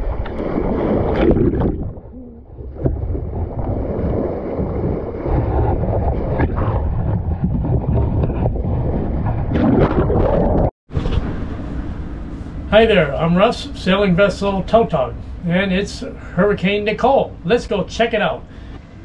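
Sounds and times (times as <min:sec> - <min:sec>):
wind buffeting microphone: 0:00.0 - 0:12.7
water rushing against hull: 0:00.0 - 0:19.0.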